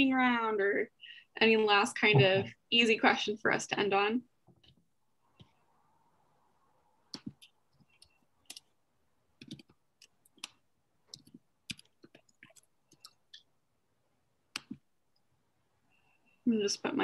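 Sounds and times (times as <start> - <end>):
typing on a keyboard: 7.1 - 8.7, 9.4 - 13.4.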